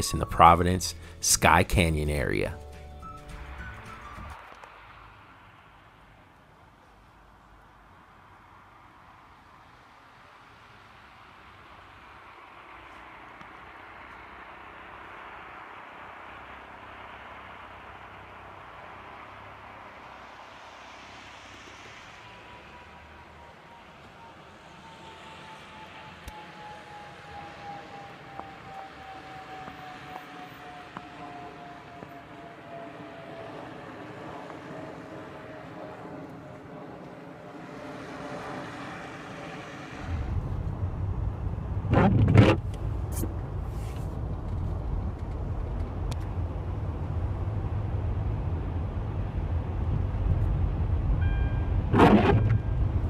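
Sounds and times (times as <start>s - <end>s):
light outdoor hiss: 0.0s - 23.2s
car driving on snowy street: 3.4s - 53.0s.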